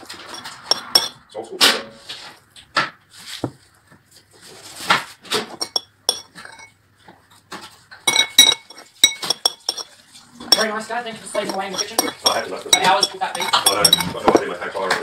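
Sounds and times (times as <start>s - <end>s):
metal spoon clinking on ceramic bowl: 0.1s - 1.2s, 5.6s - 6.8s, 8.1s - 9.9s, 10.5s - 14.5s.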